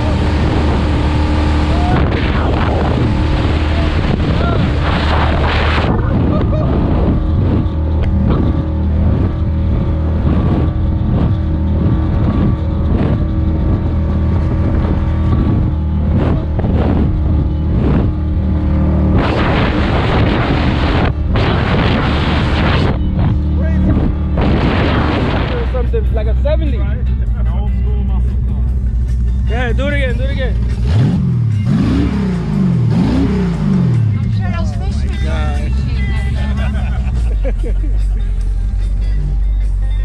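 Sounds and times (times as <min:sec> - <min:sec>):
wind buffeting microphone: 0:00.0 - 0:25.8
boat engine running: 0:00.0 - 0:40.0.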